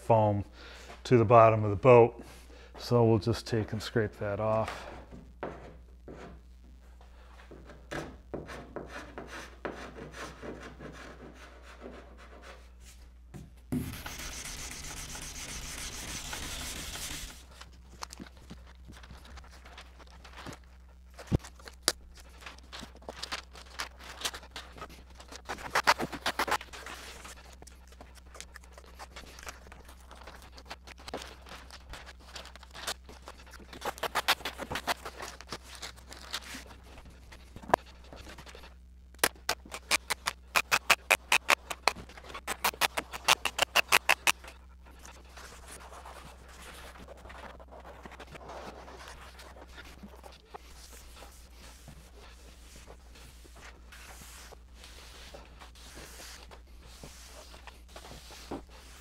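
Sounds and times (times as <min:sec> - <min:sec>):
scraping strokes on wood: 0:13.8 - 0:17.5, 0:33.2 - 0:35.4, 0:39.2 - 0:46.8, 0:47.4 - 0:59.0.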